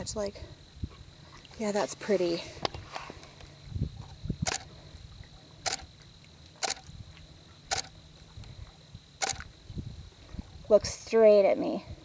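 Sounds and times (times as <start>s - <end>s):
camera shutter clicks: 4.5s - 4.7s, 5.7s - 5.9s, 6.6s - 6.8s, 7.7s - 7.9s, 9.2s - 9.5s.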